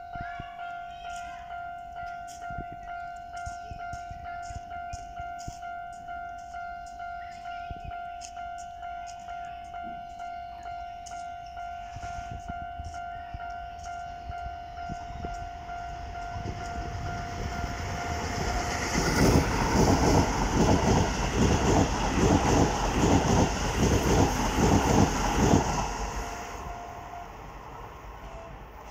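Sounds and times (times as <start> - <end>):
level crossing bell ringing: 0.0 - 23.6
train wheels clattering over rails: 16.6 - 26.4.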